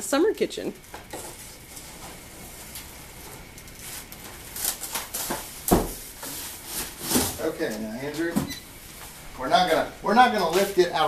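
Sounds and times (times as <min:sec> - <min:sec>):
knife slitting packing tape: 0:04.5 - 0:05.4.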